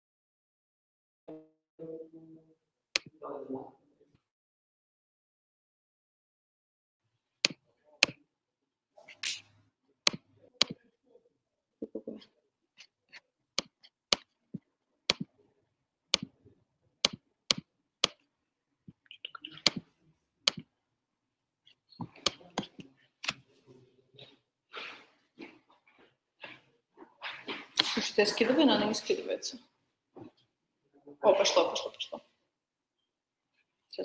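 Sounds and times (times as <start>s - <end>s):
computer mouse and keyboard clicks: 19.1s - 19.9s.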